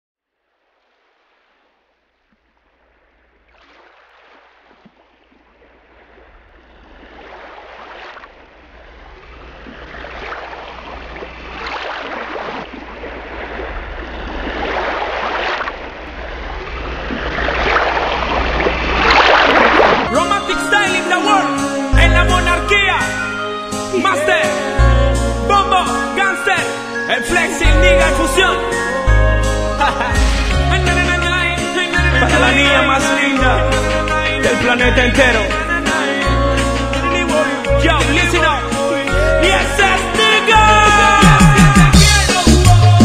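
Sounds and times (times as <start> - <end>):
ocean waves washing in: 0.4 - 21.7.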